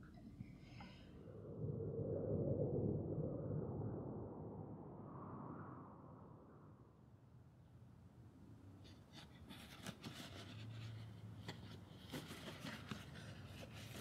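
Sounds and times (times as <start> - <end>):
cardboard box rustling and clicking: 9.2 - 14.0.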